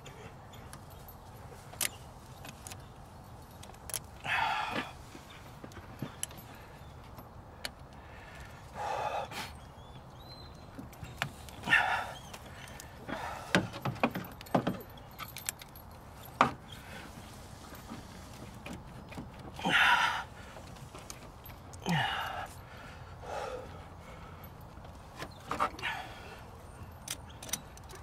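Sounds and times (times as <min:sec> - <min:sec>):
light metallic clicks and clinks: 0:00.0 - 0:08.7, 0:09.6 - 0:19.8, 0:20.5 - 0:28.0
short rustles: 0:10.7 - 0:22.7.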